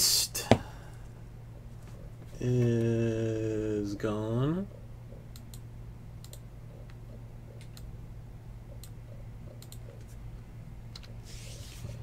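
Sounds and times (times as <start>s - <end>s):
low electrical hum: 0.0s - 12.0s
keyboard and mouse clicks: 6.2s - 7.9s, 8.7s - 10.2s, 10.9s - 11.2s.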